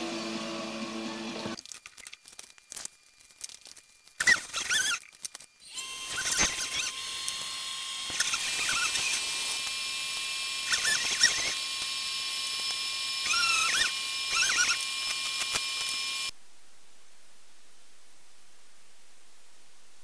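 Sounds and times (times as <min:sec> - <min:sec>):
sandpaper squeaking on steel: 0:04.2 - 0:05.0, 0:06.0 - 0:07.5, 0:08.1 - 0:11.7, 0:12.4 - 0:16.2.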